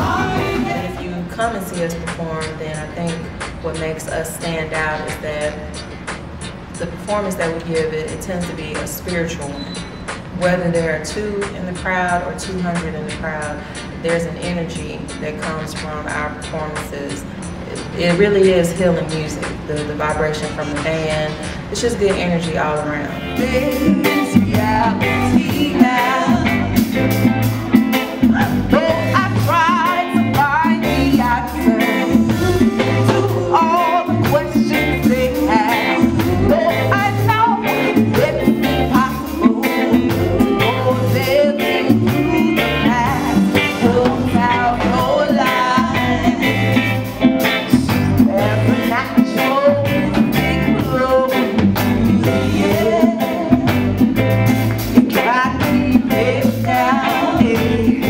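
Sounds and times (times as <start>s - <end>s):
women singing: 0.0s - 2.3s, 22.2s - 27.1s, 28.2s - 54.2s, 55.0s - 58.0s
reggae band playing: 0.0s - 58.0s.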